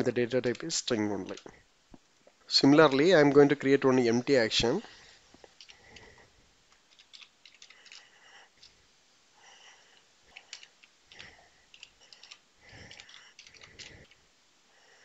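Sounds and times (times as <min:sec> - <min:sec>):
computer keyboard typing: 0:00.4 - 0:01.6, 0:06.9 - 0:08.7, 0:10.3 - 0:14.2.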